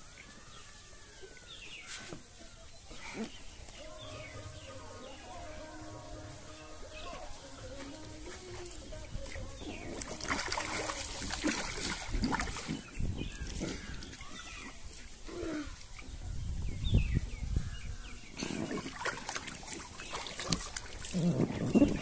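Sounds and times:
water splashing in a paddling pool: 0:06.4 - 0:16.3, 0:18.2 - 0:22.0.

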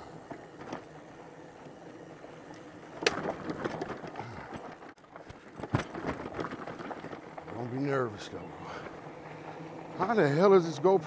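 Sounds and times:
bike rolling rumble: 0:00.0 - 0:11.0
clatters and rattles: 0:02.4 - 0:10.8.

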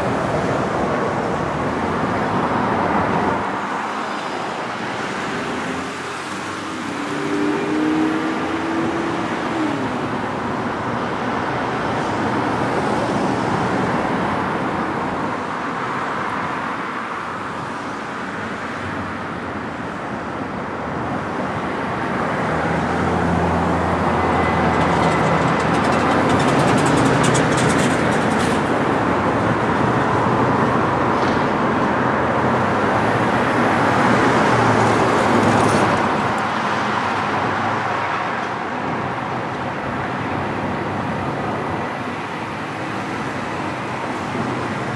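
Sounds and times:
cars driving past: 0:00.0 - 0:19.8, 0:20.9 - 0:44.9
freight train rumbling over steel bridge: 0:23.0 - 0:31.0.

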